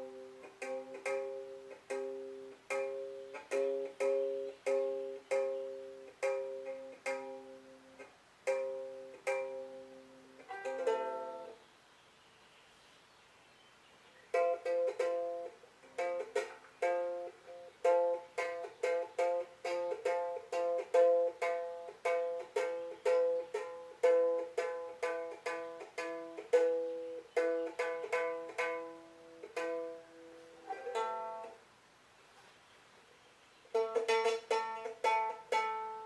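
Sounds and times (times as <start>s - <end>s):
ukulele strumming chords: 0.0s - 11.6s, 14.3s - 31.7s, 33.7s - 36.0s.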